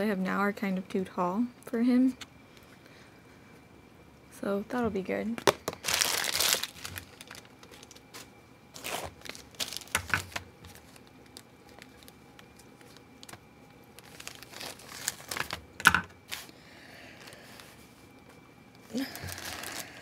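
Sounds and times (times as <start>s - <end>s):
plastic packet crinkling: 5.4s - 16.5s, 18.9s - 20.0s.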